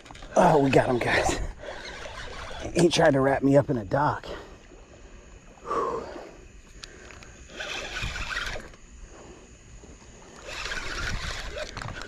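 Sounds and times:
fishing reel being cranked: 0.0 - 3.0, 6.8 - 8.8, 10.4 - 12.0.

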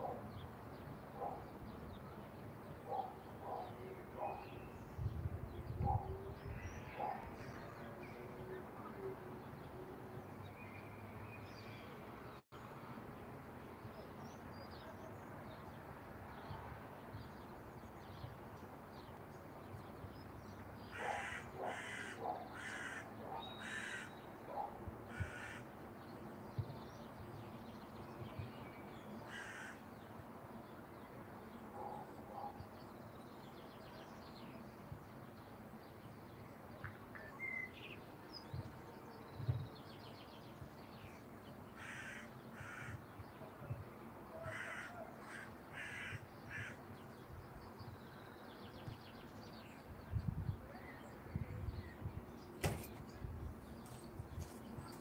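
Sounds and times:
crow cawing: 20.9 - 24.2, 25.1 - 25.7, 29.3 - 29.8, 41.8 - 43.0, 44.4 - 46.8.

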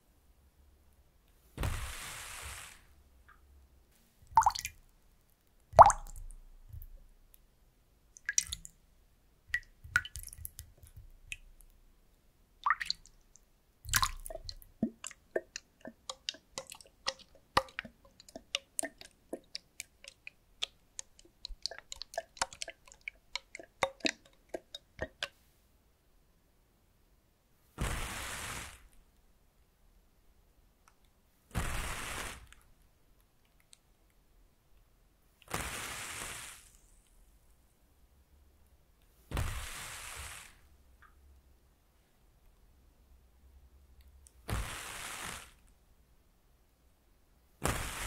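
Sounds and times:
water drops plopping into bowl: 4.3 - 4.8, 5.8 - 6.2, 12.6 - 13.1, 13.9 - 20.2
water splashing: 4.3 - 4.8, 5.8 - 6.9, 8.2 - 8.7, 9.5 - 11.5, 12.6 - 13.2, 13.9 - 25.3.

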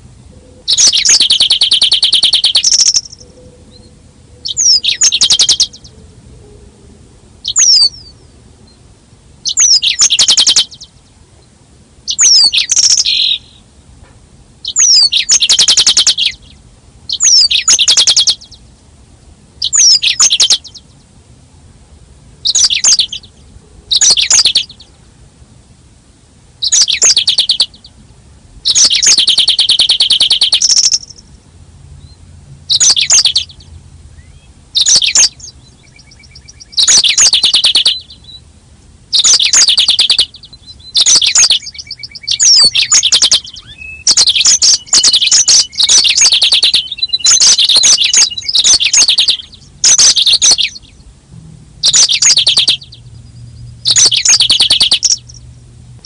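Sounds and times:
canary twittering trills: 0.3 - 6.0, 7.4 - 8.8, 9.4 - 11.2, 12.1 - 13.7, 14.6 - 18.7, 19.6 - 21.0, 22.4 - 25.0, 26.6 - 28.0, 28.6 - 31.4, 32.0 - 38.5, 39.1 - 51.1, 51.8 - 55.4.

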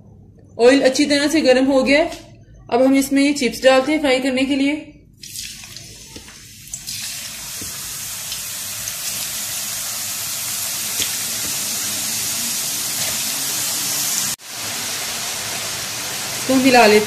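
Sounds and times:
potato slices sizzling in oil: 5.2 - 17.0.

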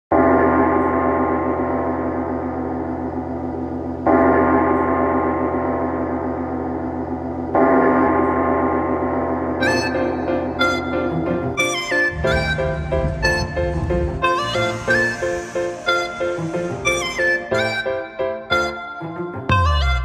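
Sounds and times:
gong ringing: 9.8 - 17.6.

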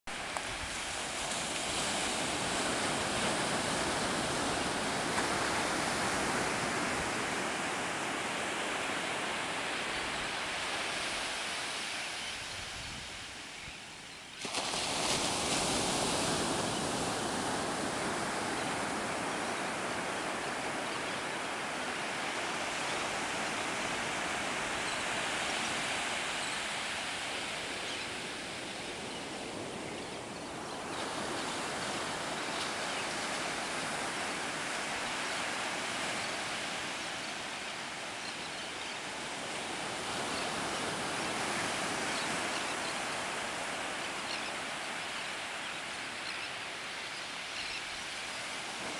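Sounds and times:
ocean surf on a beach: 0.1 - 48.9.

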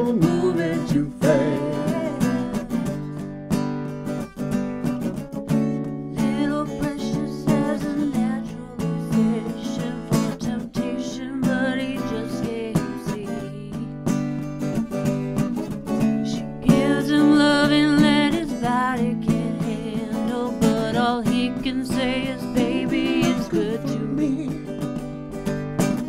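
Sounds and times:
acoustic guitar strumming chords: 0.0 - 26.0.

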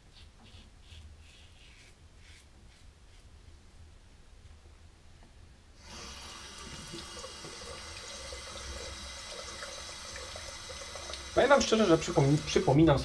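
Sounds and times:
razor rinsed under water: 5.8 - 13.0
tap water running into sink: 5.9 - 13.0.

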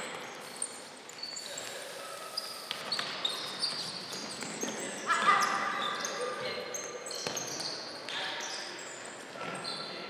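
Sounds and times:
shoes squeaking on wooden floor: 2.3 - 10.0.

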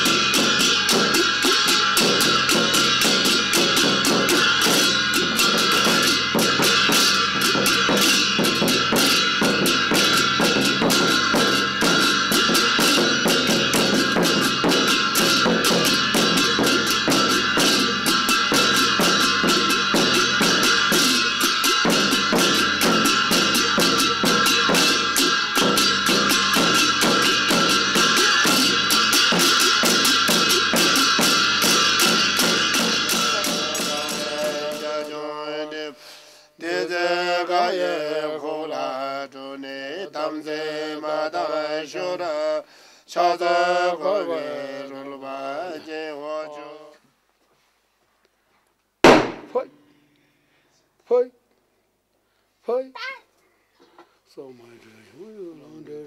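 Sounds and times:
frame drum rapid roll: 0.0 - 35.1
hand bell ringing: 0.0 - 35.3
cymbals: 0.0 - 38.2, 49.0 - 50.6.

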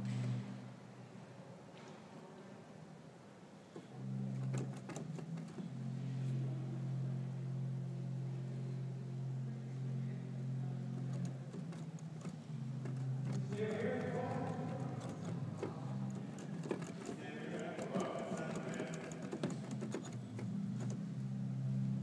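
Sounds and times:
organ clicks: 3.7 - 5.8, 11.0 - 21.2.

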